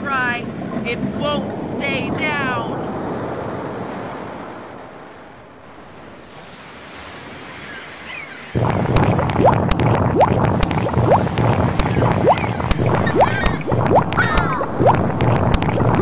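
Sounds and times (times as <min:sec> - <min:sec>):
storm wind: 0:00.0 - 0:16.0
waves: 0:00.0 - 0:16.0
clicks and rising squeaks: 0:08.6 - 0:16.0.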